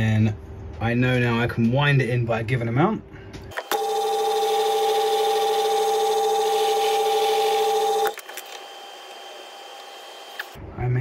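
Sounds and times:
lathe humming: 3.6s - 10.6s.

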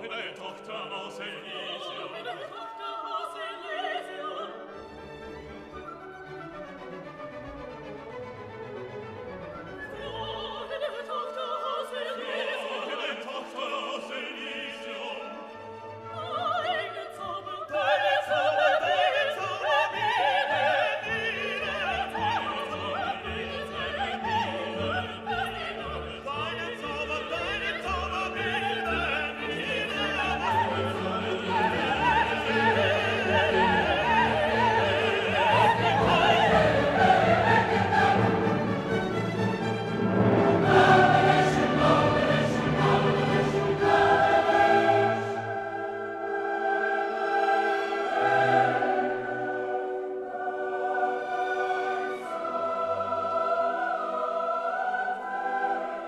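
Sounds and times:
choir singing: 0.0s - 7.0s, 7.6s - 56.0s
orchestra playing: 0.0s - 11.2s, 18.4s - 54.4s
operatic solo singing: 16.1s - 39.4s.

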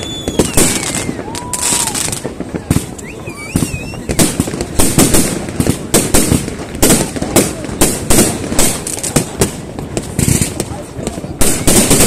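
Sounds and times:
firework whistles sliding in pitch: 0.0s - 2.2s, 2.9s - 4.4s
fireworks bangs and crackles: 0.0s - 12.0s.

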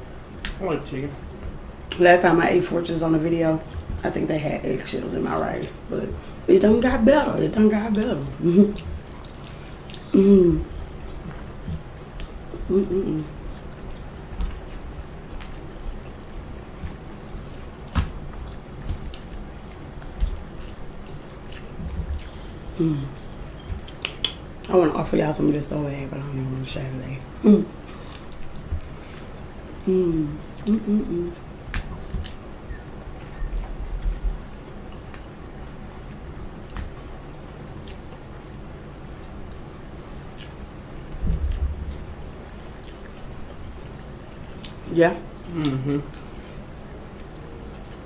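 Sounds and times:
steady low hiss: 0.0s - 48.0s
chewing and wet mouth sounds: 7.8s - 25.5s, 27.6s - 48.0s.

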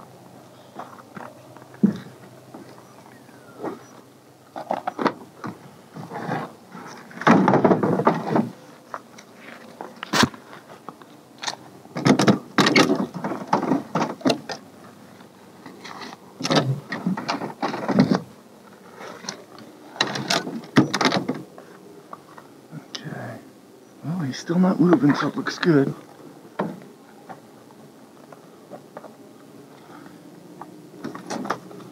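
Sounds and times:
knocks and scraping on wood: 0.8s - 2.8s, 4.6s - 14.6s, 15.7s - 18.3s.

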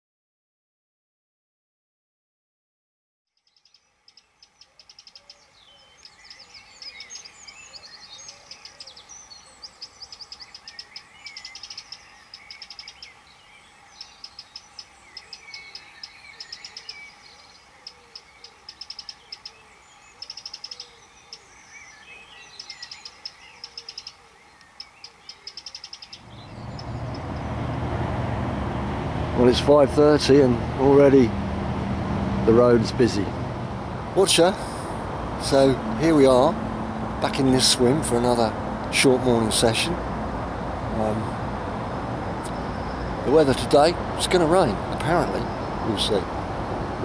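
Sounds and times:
songbirds trilling and chirping: 3.3s - 47.0s
road traffic rumble: 24.8s - 47.0s.

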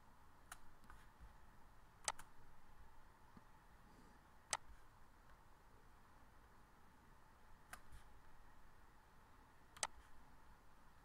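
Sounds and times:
faint room hiss: 0.0s - 11.0s
computer mouse clicks: 0.4s - 1.1s, 2.0s - 2.4s, 4.5s - 4.8s, 7.7s - 8.1s, 9.7s - 10.2s.

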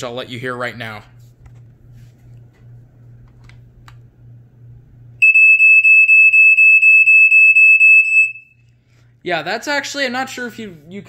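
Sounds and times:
smoke alarm pulsing horn: 5.2s - 8.6s.

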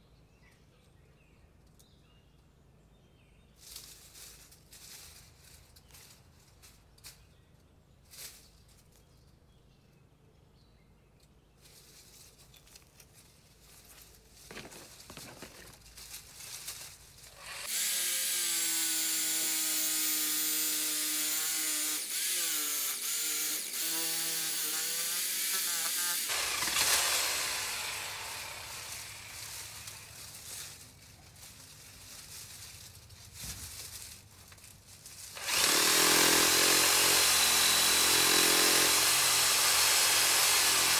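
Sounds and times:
power saw cutting branches: 14.4s - 31.5s, 35.0s - 40.9s.

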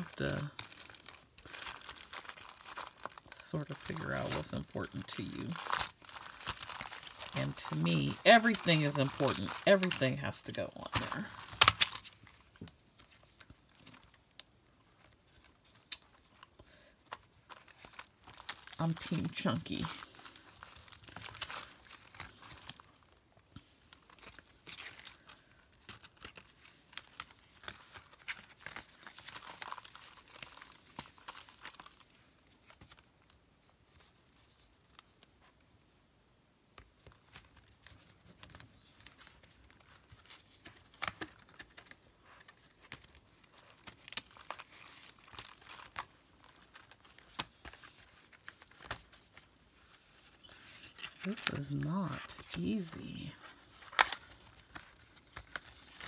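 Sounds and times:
paper rustling: 0.0s - 13.9s, 36.8s - 56.0s.

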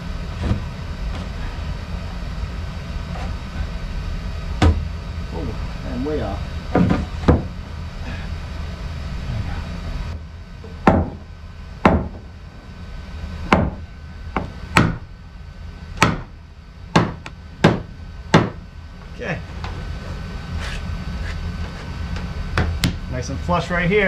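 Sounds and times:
hammer striking lumber: 10.9s - 11.2s, 11.9s - 12.2s, 13.5s - 13.8s, 14.4s - 15.0s, 16.0s - 16.3s, 16.9s - 18.6s.

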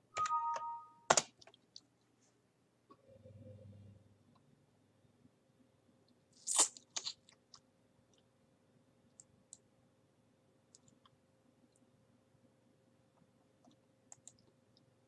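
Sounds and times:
computer mouse clicking: 13.6s - 14.5s.

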